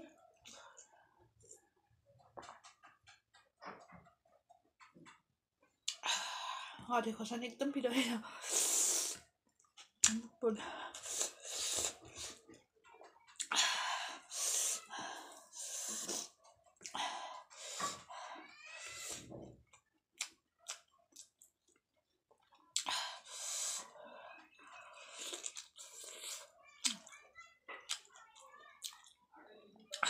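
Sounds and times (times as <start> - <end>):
wet chewing and lip smacking: 19.7 - 22.9, 25.0 - 27.1.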